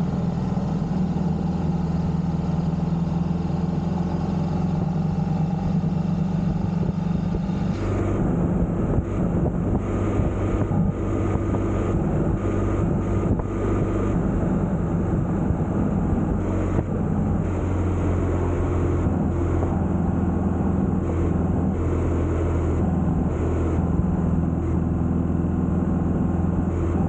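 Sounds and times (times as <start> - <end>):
motorcycle engine cruising: 0.0 - 27.0
wind and road noise: 0.0 - 27.0.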